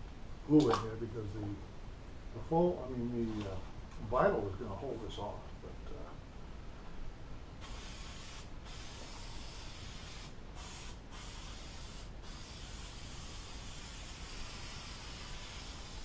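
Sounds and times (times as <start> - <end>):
aerosol spray hissing: 7.6 - 16.0.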